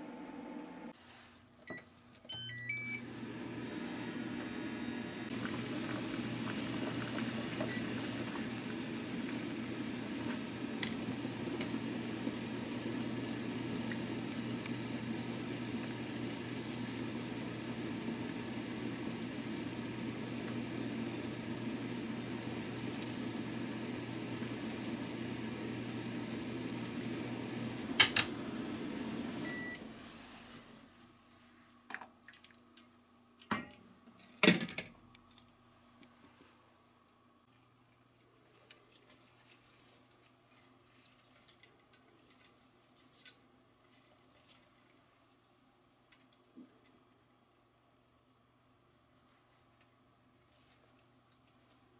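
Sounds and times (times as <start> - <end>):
water boiling in a pot: 5.3 - 30.4, 37.6 - 51.9.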